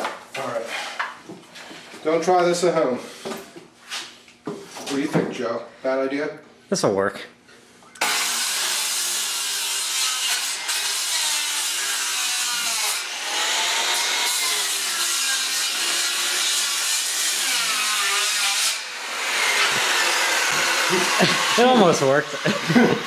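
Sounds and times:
circular saw cutting wood: 8.0 - 23.0.

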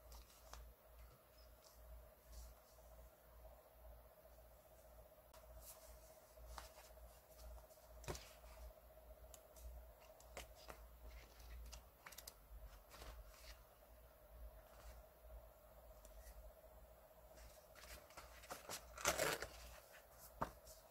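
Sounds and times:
faint steady hum: 0.0 - 20.9
paper pages rustling: 10.0 - 13.7.

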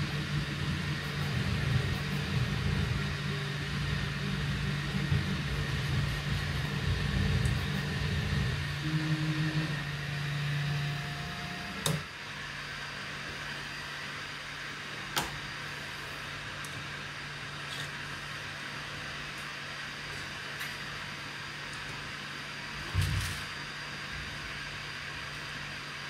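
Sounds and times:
stepper motors whining: 0.0 - 12.1
fan hum: 0.0 - 26.0.

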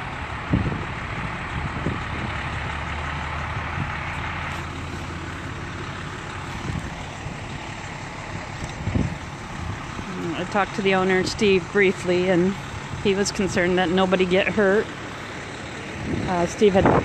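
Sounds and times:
large truck engine idling: 0.0 - 17.0
wind blowing over microphone: 0.3 - 2.7, 3.5 - 4.1, 6.6 - 7.5, 8.4 - 10.1, 16.0 - 17.0.

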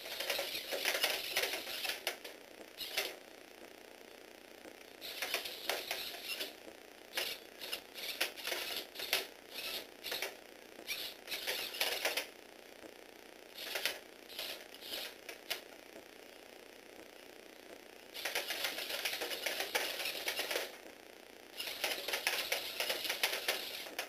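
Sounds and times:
small motor and gear whirring: 0.0 - 3.2, 5.0 - 12.3, 13.6 - 15.6, 18.1 - 20.8, 21.5 - 24.0.

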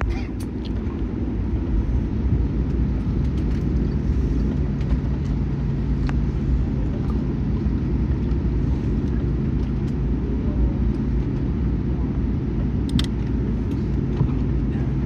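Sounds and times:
airplane cabin rumble: 0.0 - 15.0
low steady hum: 0.0 - 15.0.

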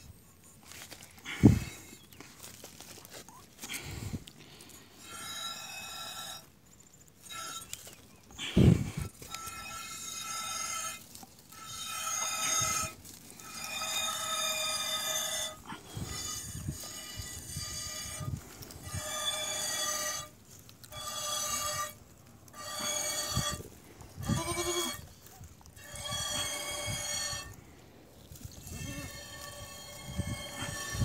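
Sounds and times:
goat bleating: 24.2 - 25.0.

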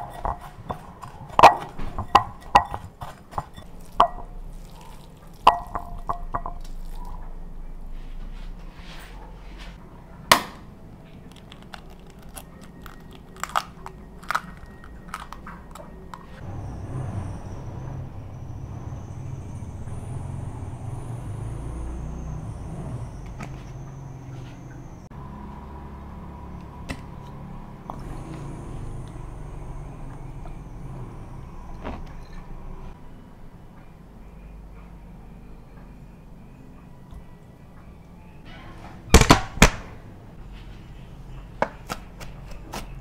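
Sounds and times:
clicks and knocks in glass bowl: 0.0 - 4.3, 5.4 - 7.0
low rumble with high whine: 27.9 - 33.0.

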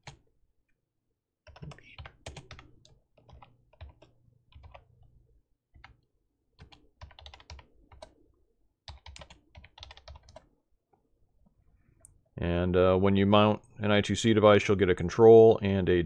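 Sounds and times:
typing on a computer keyboard: 0.0 - 0.2, 1.4 - 5.0, 5.7 - 6.0, 6.6 - 8.2, 8.8 - 10.5.

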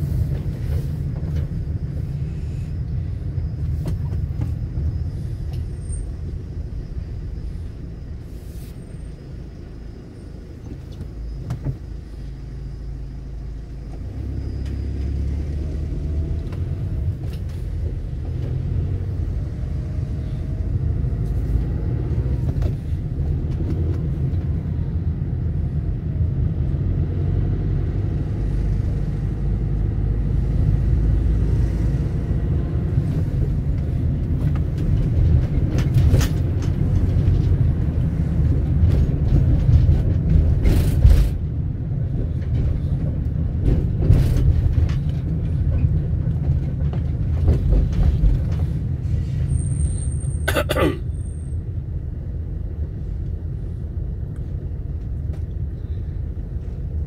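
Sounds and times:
deep traffic rumble: 0.0 - 57.0.

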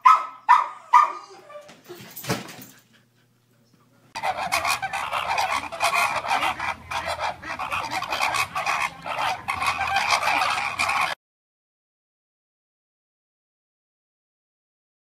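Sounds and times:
flamingos honking: 4.2 - 11.2.

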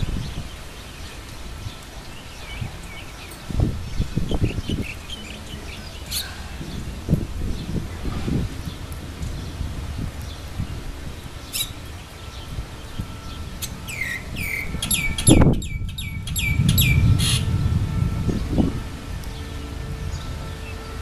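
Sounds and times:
bird calling: 4.3 - 6.7, 11.4 - 17.5
low rumble: 12.6 - 20.6.

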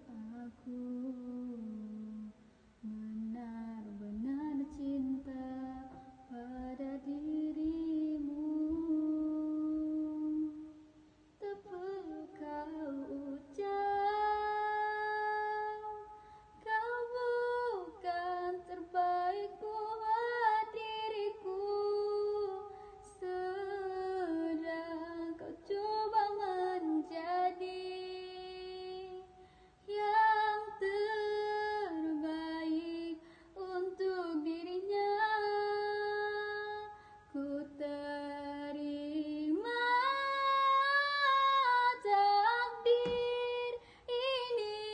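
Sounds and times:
woman singing into microphone: 0.0 - 10.8, 11.4 - 44.9
singer's breaths: 29.3 - 29.8.

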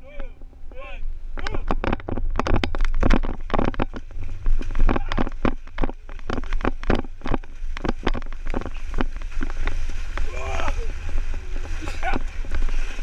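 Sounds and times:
low rumble: 0.0 - 13.0
feet splashing through water: 4.0 - 13.0.

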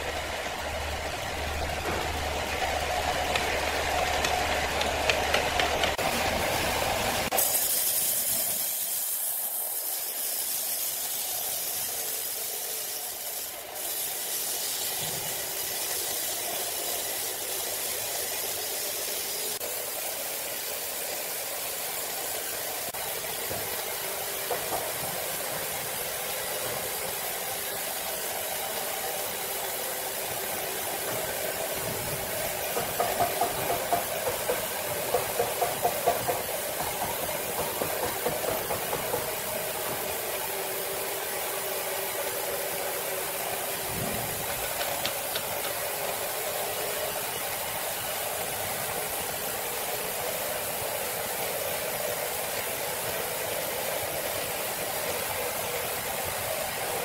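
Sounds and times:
band saw cutting log: 0.0 - 19.6, 30.5 - 40.9, 43.8 - 46.5.

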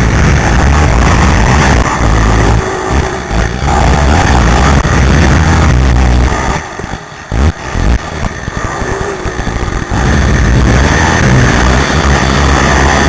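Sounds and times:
quad engine running hard: 0.0 - 13.0.

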